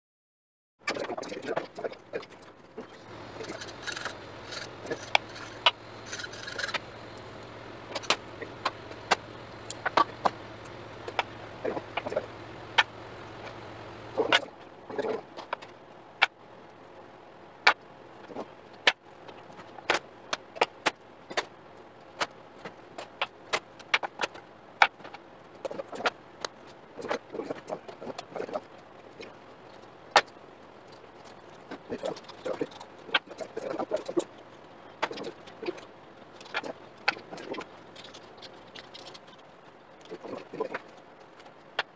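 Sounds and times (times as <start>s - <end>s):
low steady hum: 0.8s - 41.9s.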